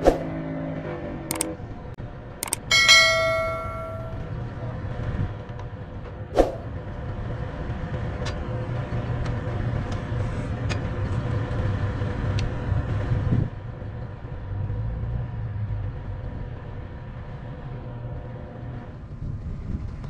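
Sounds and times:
engine running: 0.0 - 17.6
ringing metallic clank: 2.4 - 4.4.

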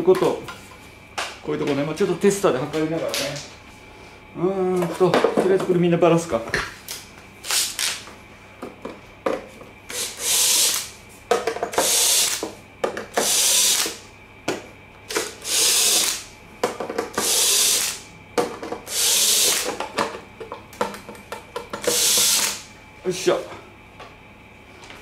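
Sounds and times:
drill whirring: 9.9 - 10.9, 11.8 - 12.4, 13.1 - 14.0, 15.1 - 16.3, 17.1 - 18.0, 18.9 - 19.7, 21.8 - 22.7.

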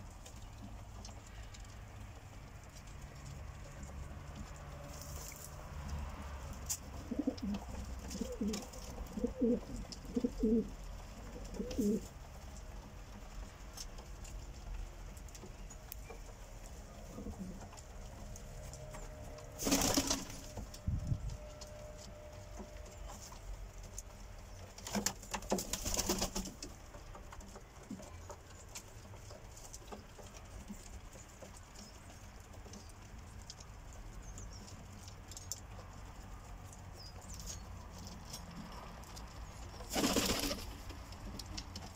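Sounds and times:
pigeons cooing: 7.0 - 12.1.

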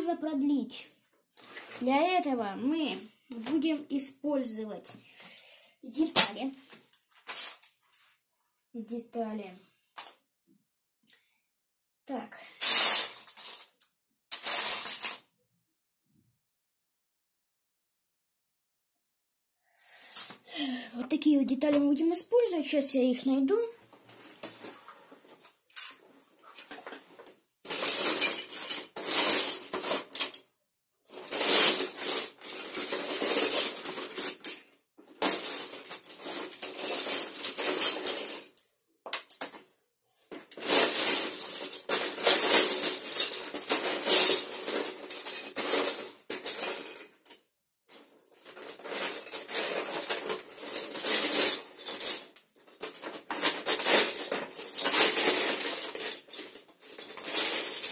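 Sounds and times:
plastic bricks clattering: 12.6 - 15.2, 27.7 - 30.4, 31.1 - 39.6, 40.3 - 57.9.

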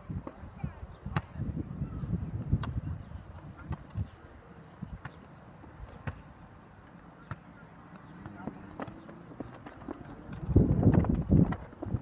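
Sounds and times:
wind buffeting microphone: 0.0 - 5.1, 8.1 - 12.0.

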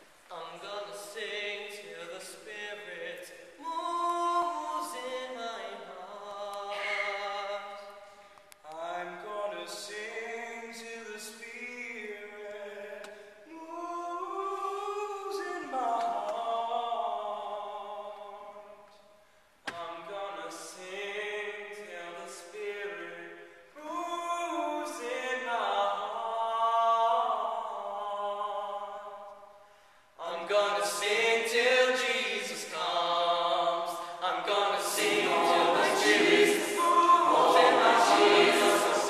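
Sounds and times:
choir singing a cappella: 4.2 - 7.8, 30.2 - 39.0.

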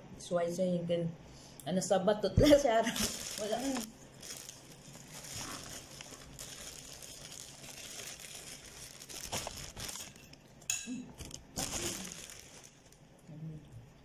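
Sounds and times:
plastic packaging crinkling: 2.7 - 10.6, 11.2 - 13.2.

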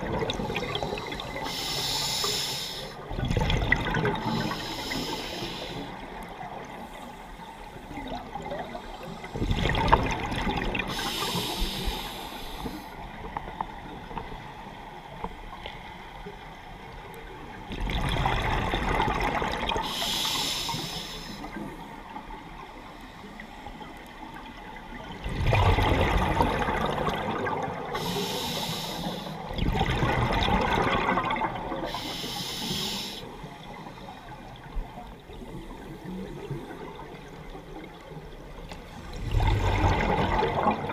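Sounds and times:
diver breathing underwater bubbling: 0.0 - 13.1, 25.3 - 34.3, 38.8 - 40.9
regulator hiss: 1.3 - 3.0, 4.3 - 6.0, 10.9 - 12.9, 19.9 - 21.6, 28.0 - 29.5, 31.9 - 33.4.

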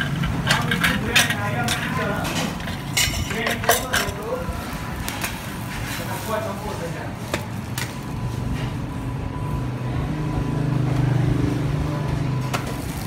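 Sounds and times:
vehicle engine humming: 0.0 - 5.9.

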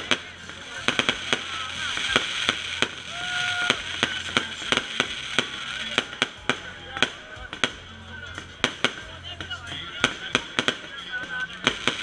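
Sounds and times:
firework whistle: 0.0 - 6.0
fireworks cracks and bangs: 0.0 - 12.0.

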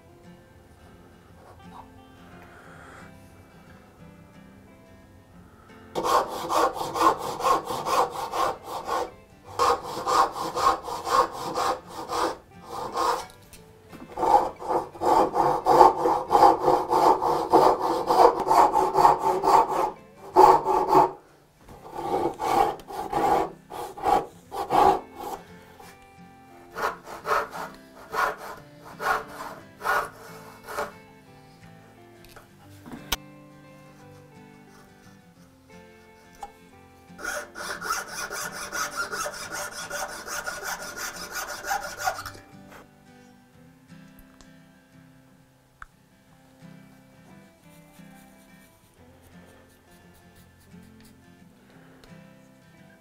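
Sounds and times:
hand saw rasping through wood: 6.0 - 13.4, 14.0 - 26.0, 26.7 - 31.0, 37.2 - 42.8.

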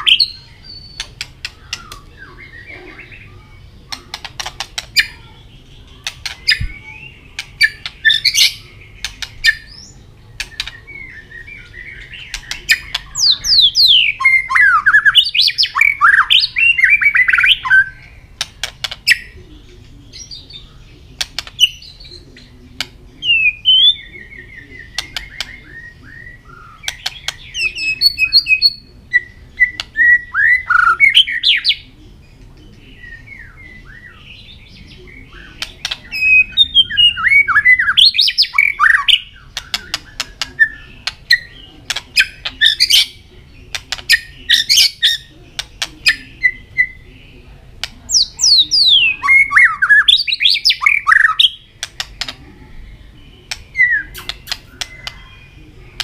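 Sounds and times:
bird singing whistled phrases: 0.0 - 3.2, 36.1 - 41.5.

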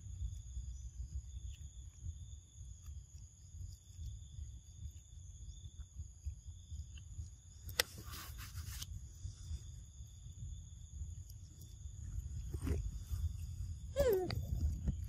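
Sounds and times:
rustling noise: 7.8 - 9.9, 12.2 - 15.0.

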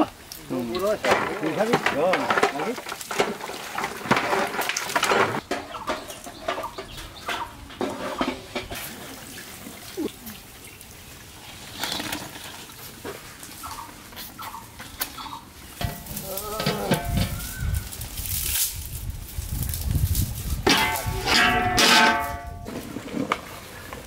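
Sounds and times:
bread deep-frying in oil: 0.0 - 21.8
birds calling: 5.4 - 8.6, 12.7 - 18.0.

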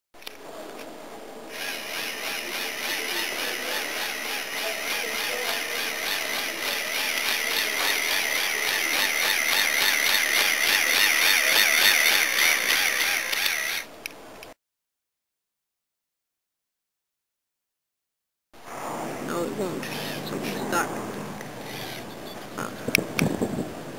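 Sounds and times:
toy motor and gears whirring: 1.5 - 13.9, 19.8 - 20.8, 21.6 - 22.7.

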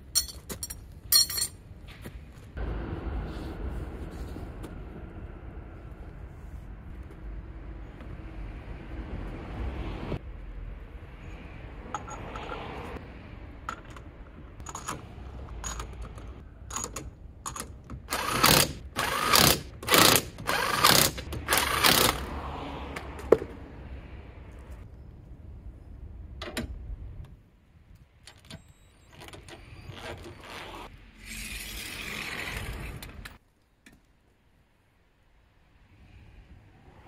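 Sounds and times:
tools clicking and clanking: 0.0 - 1.6, 13.6 - 22.3
impact wrench bursts: 18.0 - 22.3.

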